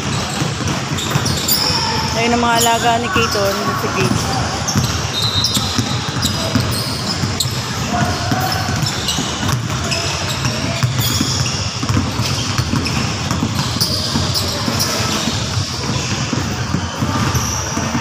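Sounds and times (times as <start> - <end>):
basketballs bouncing on hardwood floor: 0.0 - 18.0.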